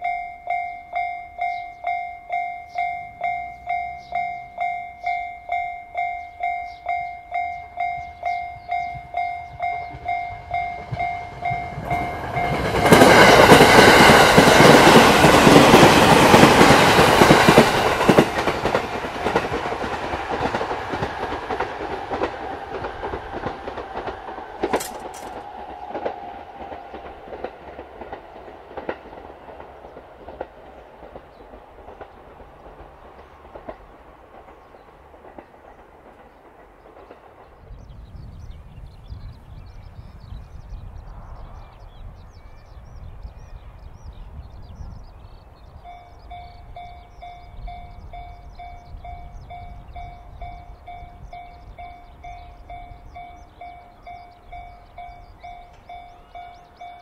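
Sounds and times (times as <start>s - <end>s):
level-crossing warning bell: 0.0s - 26.1s, 45.8s - 57.0s
train passing with wheel clicks: 0.0s - 57.0s.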